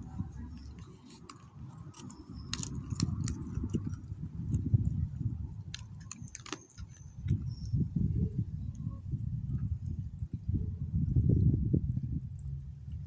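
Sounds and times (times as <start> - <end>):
dog crunching bone: 0.6 - 4.6, 5.7 - 7.4
low rumble: 7.2 - 13.0.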